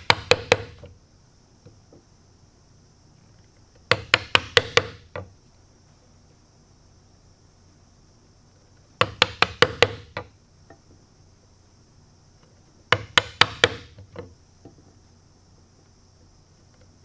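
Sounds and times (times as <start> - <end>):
mallet striking a chisel: 12.9 - 14.0.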